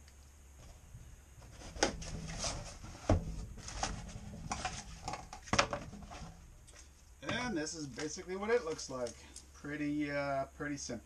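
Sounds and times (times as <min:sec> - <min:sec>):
cardboard scraping and rustling: 0:01.4 - 0:06.5.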